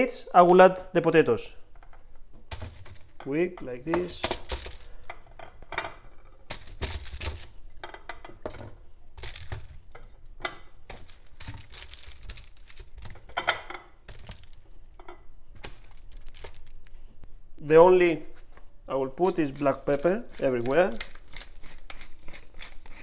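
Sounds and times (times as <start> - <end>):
parchment paper crinkling: 10.9 - 13.3, 15.5 - 17.1, 19.2 - 23.0.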